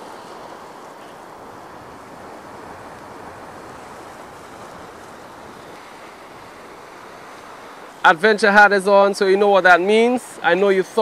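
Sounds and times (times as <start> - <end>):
surf breaking on rocks: 0.0 - 11.0.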